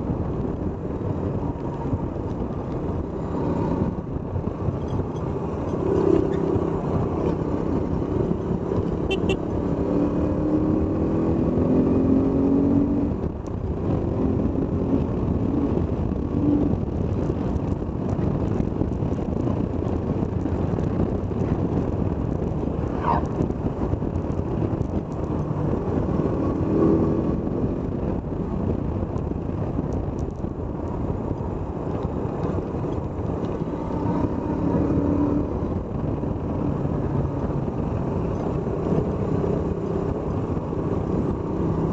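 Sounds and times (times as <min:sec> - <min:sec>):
wind rushing over microphone: 0:00.0 - 0:41.9
motorcycle engine running: 0:07.0 - 0:09.7.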